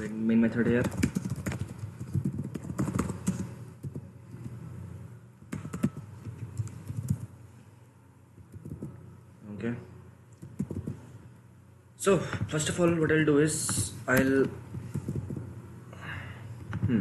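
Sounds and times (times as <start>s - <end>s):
typing on computer keyboard: 0.8s - 4.0s, 5.5s - 6.0s, 6.6s - 7.3s, 8.5s - 8.9s, 10.4s - 11.0s, 14.8s - 15.4s.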